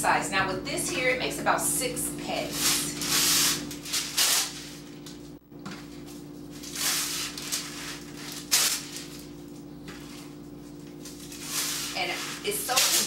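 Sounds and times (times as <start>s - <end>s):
paper tearing: 2.5s - 4.8s, 6.6s - 9.4s, 11.0s - 13.0s
wax paper crinkling: 2.5s - 13.0s.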